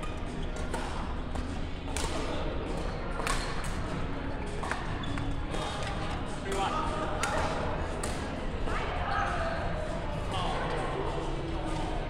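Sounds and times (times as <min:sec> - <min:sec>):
rackets hitting shuttlecock: 0:00.0 - 0:08.3.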